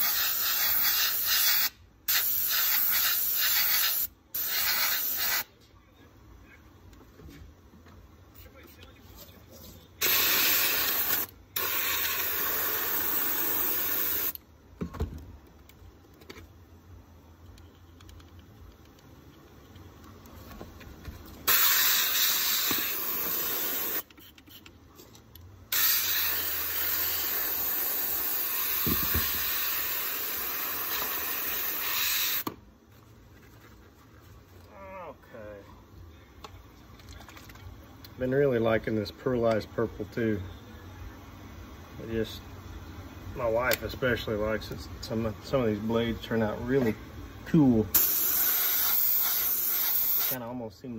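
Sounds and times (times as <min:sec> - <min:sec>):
airbrush hissing: 0:00.0 - 0:05.5, 0:10.0 - 0:14.4, 0:21.4 - 0:24.6, 0:25.7 - 0:32.5, 0:47.9 - 0:50.4.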